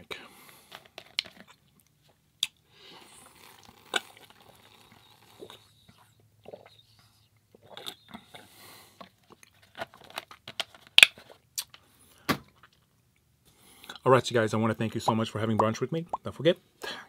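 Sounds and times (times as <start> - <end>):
mouth smacks and clicks: 1.2 - 2.6, 11.0 - 11.8
soft mouth noises: 1.4 - 9.5.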